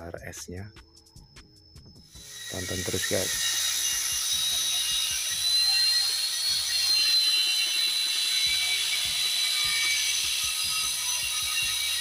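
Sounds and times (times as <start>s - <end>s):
circular saw cutting wood: 2.1s - 12.0s.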